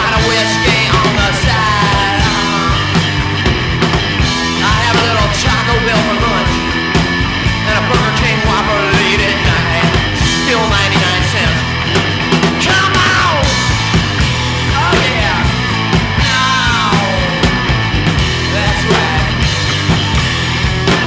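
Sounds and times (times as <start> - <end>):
rock band music: 0.0 - 21.0.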